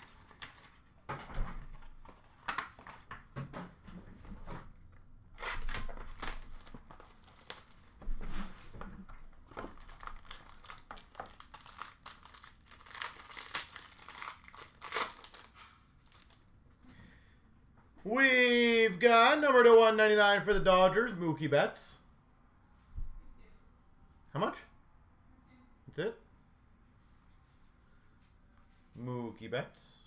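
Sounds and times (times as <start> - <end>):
foil wrapper crinkling and tearing: 5.4 - 8.1, 9.6 - 16.4.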